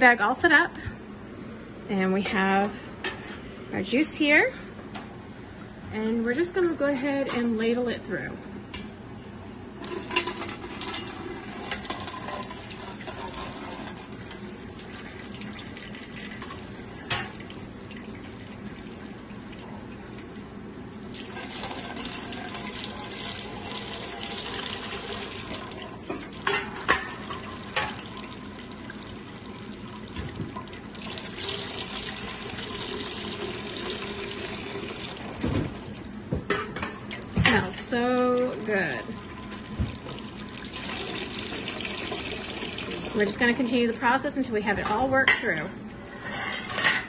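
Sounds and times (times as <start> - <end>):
juice pouring and splashing: 10.0 - 26.5, 27.1 - 36.0, 37.7 - 43.4.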